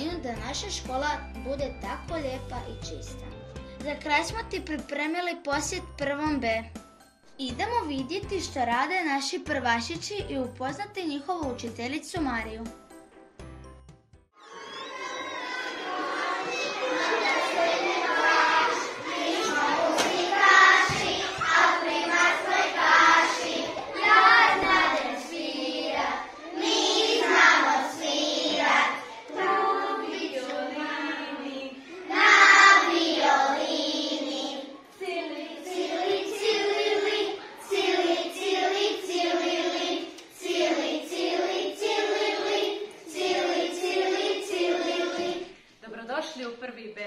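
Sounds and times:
children singing in unison: 0:14.4 - 0:45.6.

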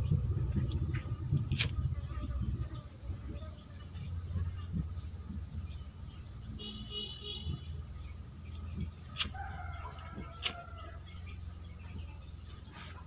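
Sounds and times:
high drone of insects: 0:00.0 - 0:13.0
rooster crowing: 0:09.2 - 0:11.1.

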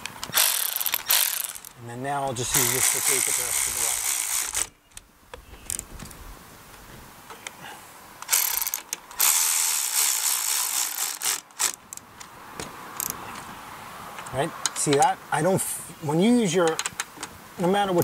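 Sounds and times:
cordless electric ratchet whirring: 0:00.3 - 0:01.7, 0:02.6 - 0:04.7, 0:08.3 - 0:11.8.

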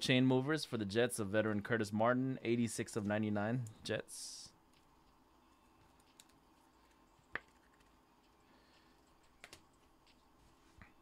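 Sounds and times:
low room hum: 0:00.0 - 0:11.0
faint clicks and taps: 0:04.7 - 0:11.0.

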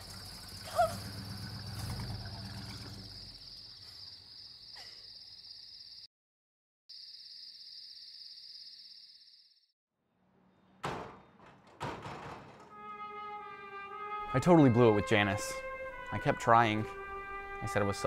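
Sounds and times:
car engine pulling away: 0:00.0 - 0:03.5
crickets chirring: 0:00.0 - 0:06.1, 0:06.9 - 0:09.7.

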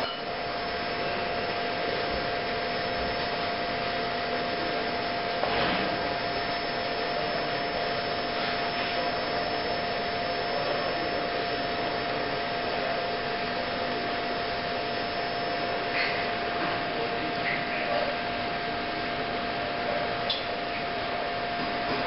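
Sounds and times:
electric welding arc hissing: 0:00.0 - 0:13.0.

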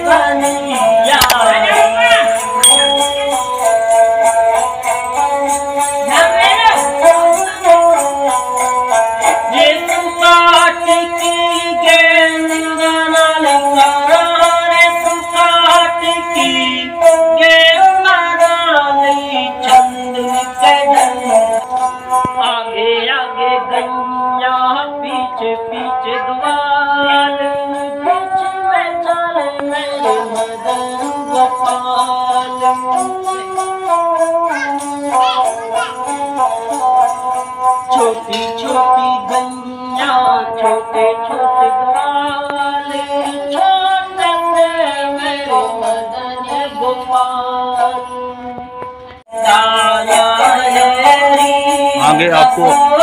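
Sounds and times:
small bells jingling: 0:00.3 - 0:22.6, 0:29.7 - 0:48.4, 0:49.2 - 0:53.0
man singing: 0:09.2 - 0:21.6, 0:22.2 - 0:33.4, 0:37.9 - 0:45.7, 0:49.3 - 0:53.0.

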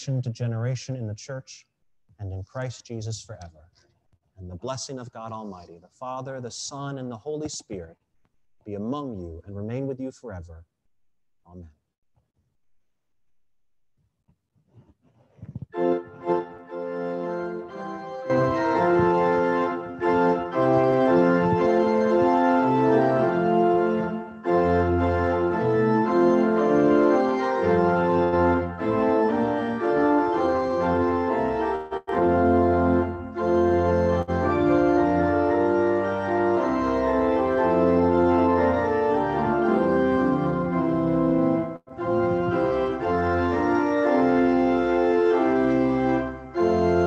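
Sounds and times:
organ playing sustained chords: 0:15.8 - 0:47.0.

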